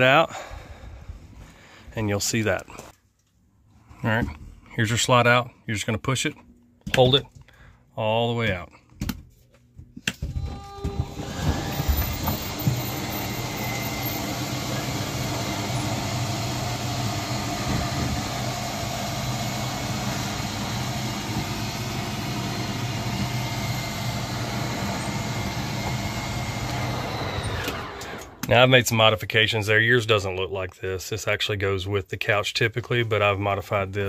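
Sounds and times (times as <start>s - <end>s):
electric motors humming and whining: 10.2s - 28.5s.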